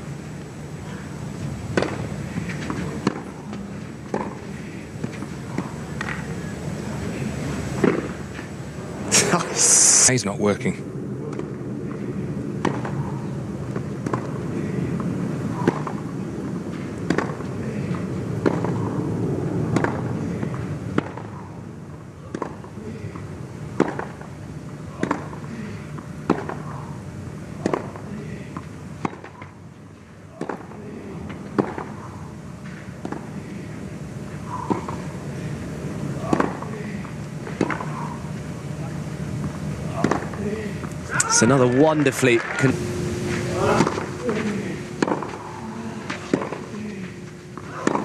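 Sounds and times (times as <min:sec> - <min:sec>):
tennis racquets hitting ball: 0:01.7 - 0:06.3, 0:07.8 - 0:08.5, 0:11.3 - 0:13.0, 0:13.7 - 0:14.4, 0:15.6 - 0:16.1, 0:16.8 - 0:19.0, 0:19.7 - 0:21.3, 0:22.3 - 0:24.3, 0:25.0 - 0:26.9, 0:27.6 - 0:29.6, 0:30.3 - 0:33.4, 0:34.6 - 0:35.2, 0:36.2 - 0:38.2, 0:39.4 - 0:40.8, 0:43.3 - 0:48.0.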